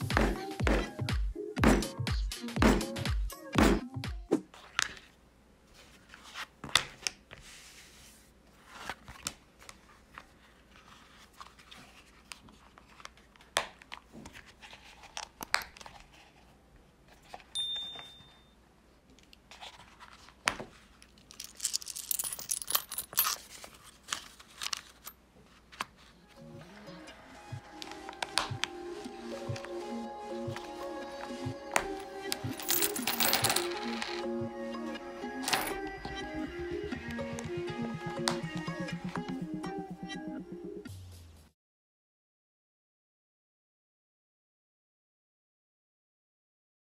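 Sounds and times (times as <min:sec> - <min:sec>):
paper banknotes crinkling: 0:19.5 - 0:26.2.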